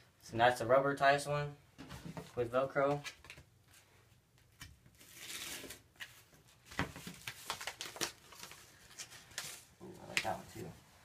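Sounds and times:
paper envelope rustling: 0:05.0 - 0:10.4.

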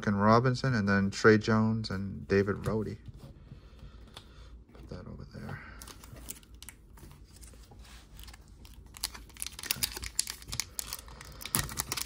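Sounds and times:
foil wrapper crinkling and tearing: 0:08.2 - 0:12.0.

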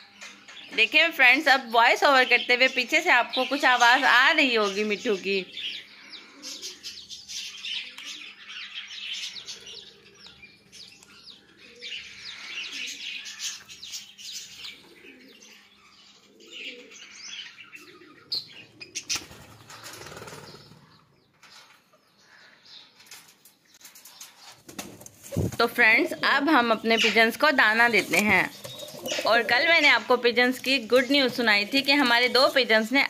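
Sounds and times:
rustling noise: 0:23.0 - 0:25.8
parakeets chirping: 0:25.4 - 0:33.0.

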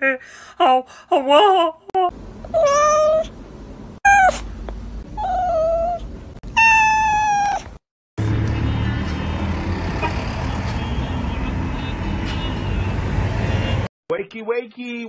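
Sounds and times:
cat meowing: 0:02.6 - 0:03.3, 0:04.1 - 0:04.4, 0:05.2 - 0:07.7.

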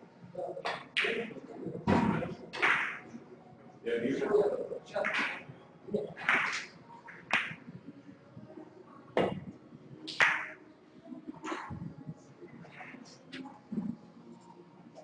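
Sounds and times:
snooker balls knocking: 0:01.8 - 0:03.1.

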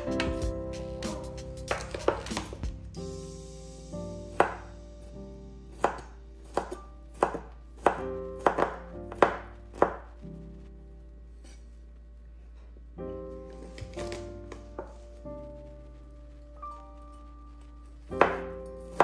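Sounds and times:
knife chopping on wooden board: 0:01.7 - 0:02.6, 0:04.3 - 0:04.6, 0:05.8 - 0:10.0, 0:18.2 - 0:19.0.

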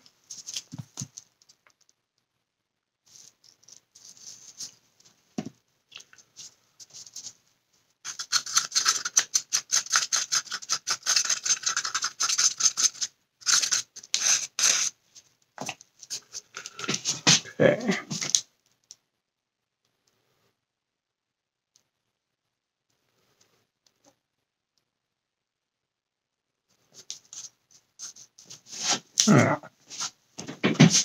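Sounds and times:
stick scraping inside cup: 0:08.1 - 0:15.0.

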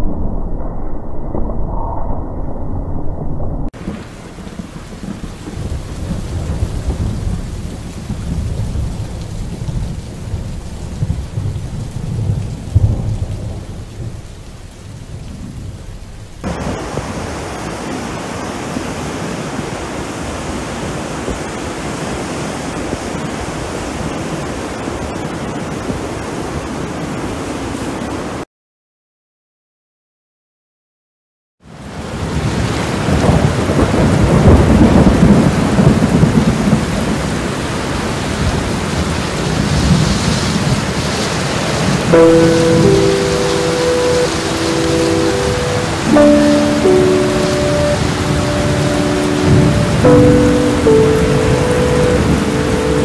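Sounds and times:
low rolling thunder: 0:00.0 - 0:17.6, 0:32.0 - 0:53.0
heavy rain hissing: 0:03.8 - 0:28.2, 0:31.8 - 0:53.0.

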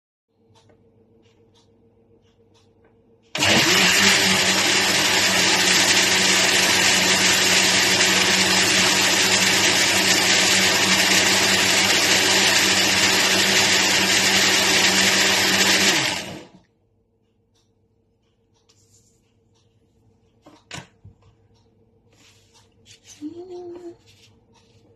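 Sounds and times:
blender running: 0:03.4 - 0:16.6.

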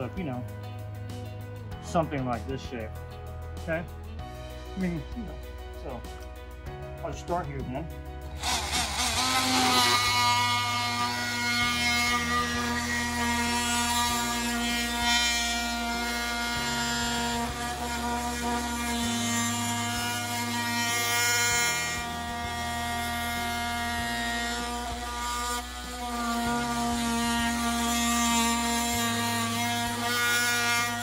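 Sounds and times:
oscillating multi-tool cutting wood: 0:08.3 - 0:31.0.

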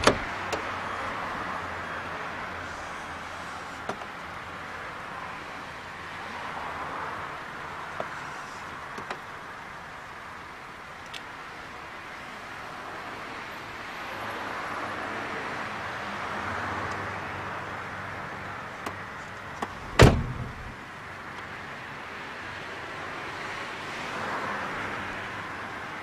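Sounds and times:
car door slamming: 0:00.0 - 0:00.3, 0:19.7 - 0:20.8.

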